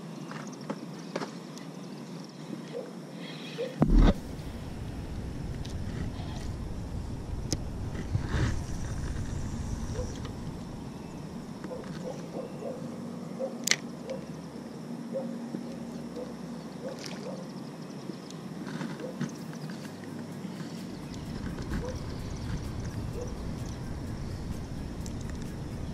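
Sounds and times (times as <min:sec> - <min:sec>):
wind rumble on microphone: 0:03.8 - 0:11.9, 0:20.8 - 0:25.9.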